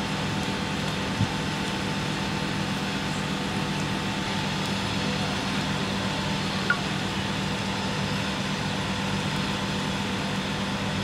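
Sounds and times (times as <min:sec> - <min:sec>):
vehicle engine idling: 0:00.0 - 0:11.0.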